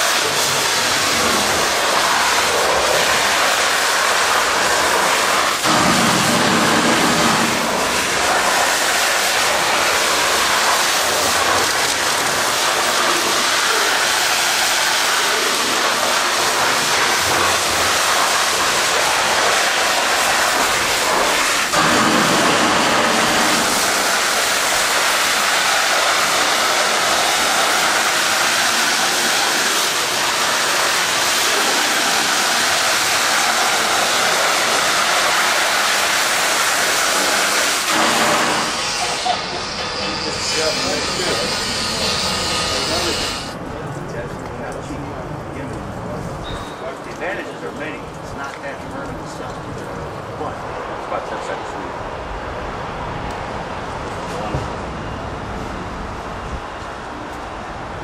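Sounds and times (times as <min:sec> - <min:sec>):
spray spattering off steel: 0:00.0 - 0:43.6
water jet rushing: 0:00.0 - 0:43.6.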